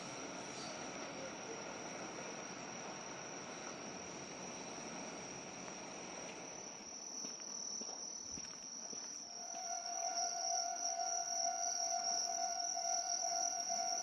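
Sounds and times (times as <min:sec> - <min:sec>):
diesel train rumble: 0:00.0 - 0:06.8, 0:09.3 - 0:14.0
insects chirping: 0:00.0 - 0:14.0
steady tone: 0:09.3 - 0:14.0.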